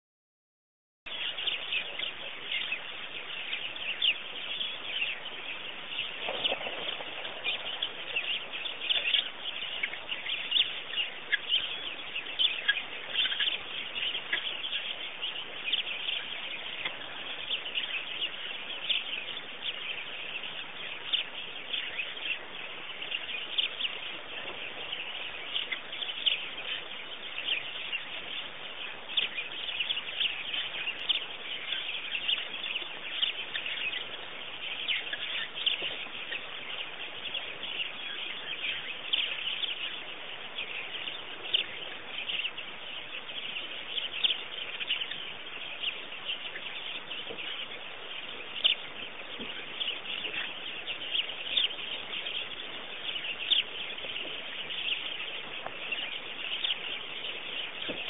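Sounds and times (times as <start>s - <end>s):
birds chirping: 1.1s - 58.0s
steady background hiss: 1.1s - 58.0s.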